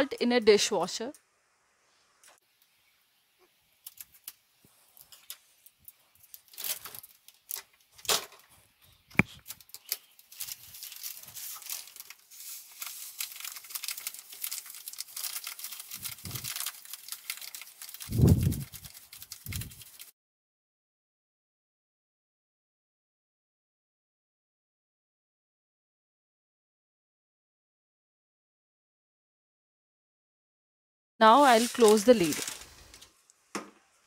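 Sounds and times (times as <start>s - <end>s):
plastic packet crinkling: 3.8s - 8.1s, 9.4s - 20.1s, 31.3s - 33.2s
salt pouring: 10.4s - 20.1s.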